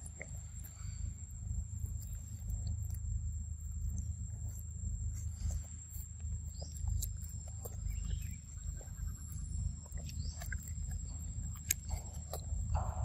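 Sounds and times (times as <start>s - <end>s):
low rumble: 0.0s - 13.0s
monkey chewing and smacking: 0.0s - 13.0s.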